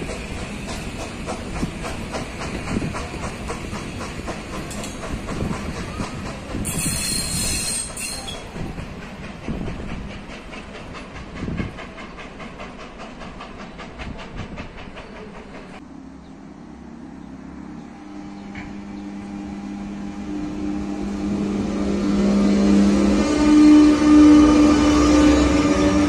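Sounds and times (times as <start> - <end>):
train wheels clicking over rail joints: 0.0 - 15.8
electric locomotive humming: 0.0 - 26.0.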